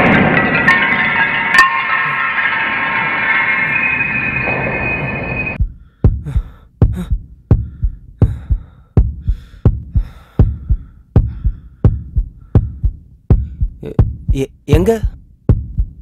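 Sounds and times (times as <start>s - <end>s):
heartbeat double thump: 5.6s - 16.0s.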